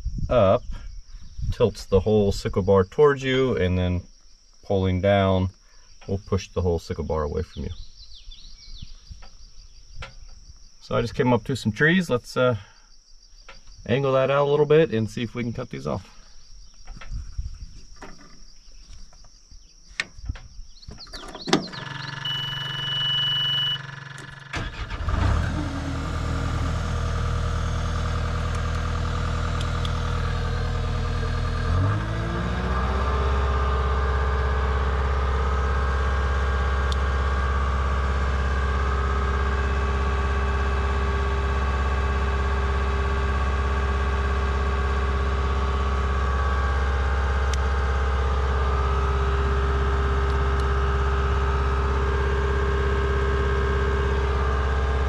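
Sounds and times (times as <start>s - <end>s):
diesel engine starting and revving: 21.0s - 55.0s
short electronic beep: 22.2s - 23.9s.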